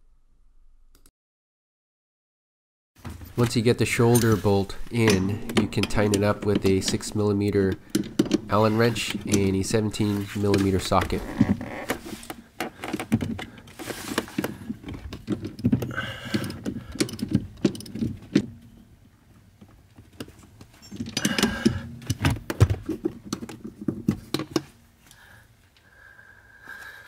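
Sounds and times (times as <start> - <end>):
metal hand tools clicking: 4.0 - 10.0.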